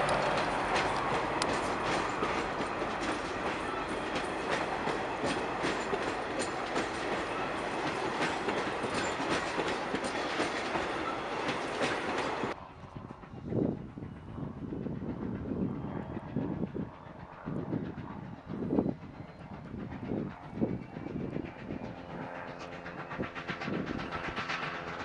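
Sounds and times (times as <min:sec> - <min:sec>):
train wheels clicking over rail joints: 0:00.0 - 0:12.6, 0:17.9 - 0:25.0.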